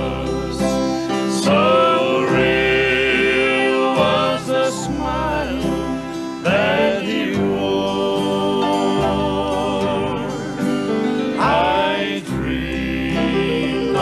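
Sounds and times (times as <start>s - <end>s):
electric and acoustic guitars: 0.0s - 14.0s
male vocal quartet singing: 0.0s - 14.0s.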